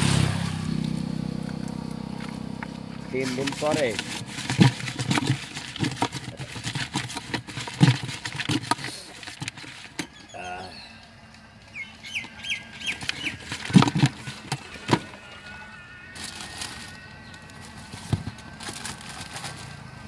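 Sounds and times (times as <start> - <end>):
spoon scraping plastic bucket: 3.1 - 10.5, 12.1 - 15.6
bird chirping: 10.0 - 13.5.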